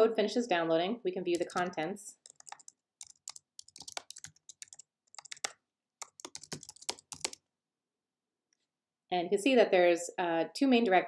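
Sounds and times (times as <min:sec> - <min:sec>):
keyboard keystroke clicks: 0:01.3 - 0:07.4.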